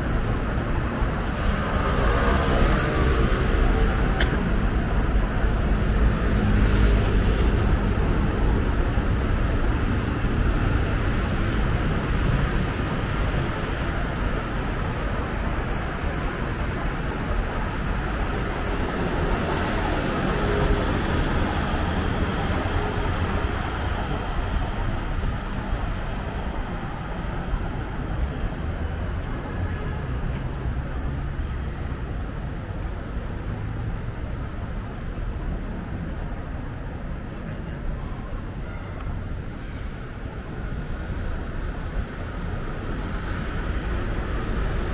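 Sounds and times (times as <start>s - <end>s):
low traffic rumble: 0.0s - 44.9s
vehicles passing: 0.0s - 44.9s.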